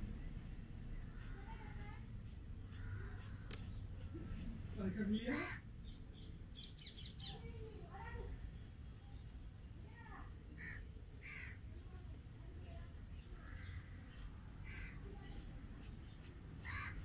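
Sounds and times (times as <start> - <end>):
faint bird calls: 0.9 - 4.5, 10.5 - 11.7, 13.2 - 17.0.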